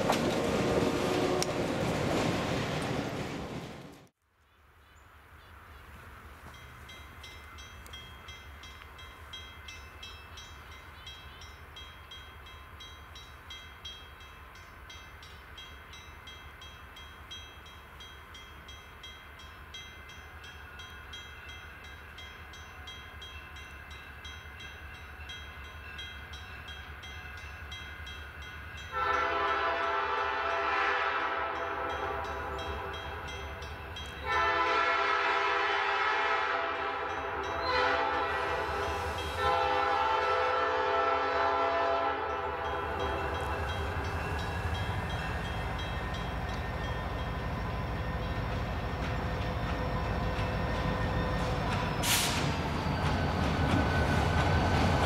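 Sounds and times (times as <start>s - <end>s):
faint distant train rumble: 0.0s - 55.0s
locomotive air horn blasts: 0.6s - 1.6s, 28.9s - 33.1s, 34.2s - 43.3s
crossing bell dinging: 6.4s - 35.1s, 36.8s - 39.6s, 41.9s - 55.0s.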